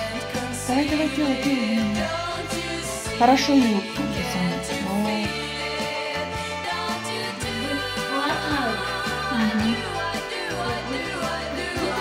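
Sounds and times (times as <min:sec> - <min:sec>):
song with singing voice: 0:00.0 - 0:12.0.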